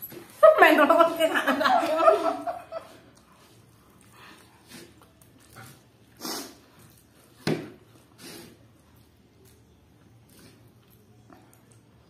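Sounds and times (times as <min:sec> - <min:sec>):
slurping noodles: 0:04.4 - 0:07.0, 0:08.0 - 0:09.0.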